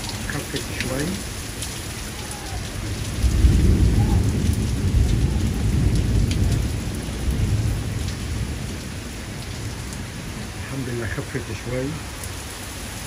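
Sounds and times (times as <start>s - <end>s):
heavy rain pouring: 0.0s - 13.0s
thunder rumbling: 1.8s - 11.2s.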